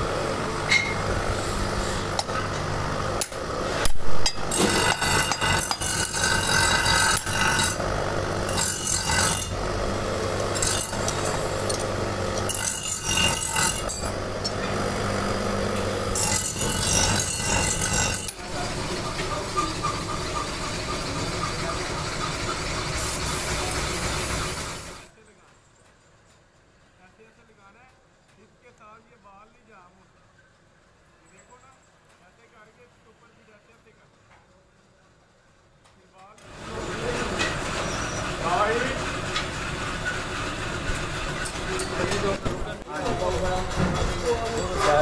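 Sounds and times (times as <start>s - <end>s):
low machine hum: 0.0s - 25.1s
hand tools scraping metal: 3.2s - 23.4s, 36.8s - 38.6s.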